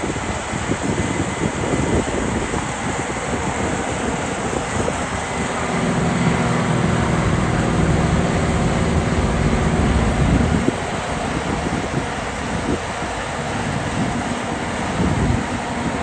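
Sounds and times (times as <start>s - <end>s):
combine harvester engine hum: 0.0s - 16.0s
propeller plane droning overhead: 0.0s - 16.0s.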